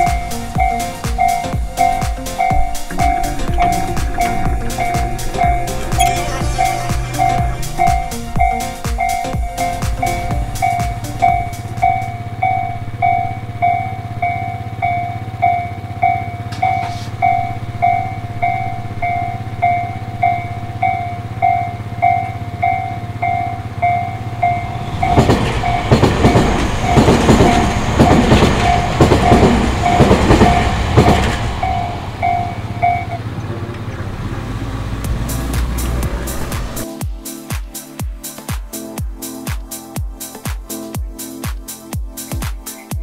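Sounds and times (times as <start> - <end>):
level crossing alarm bell: 0.0 - 33.2
train wheels clattering: 24.4 - 34.0.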